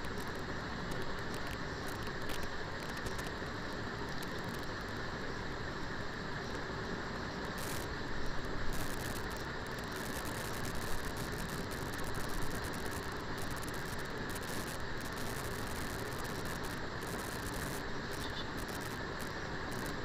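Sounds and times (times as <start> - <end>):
liver sizzling in hot oil: 7.3 - 20.0.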